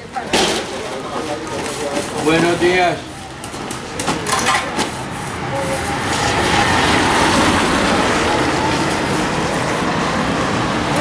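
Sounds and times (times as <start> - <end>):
heavy vehicle driving past: 4.9 - 11.0.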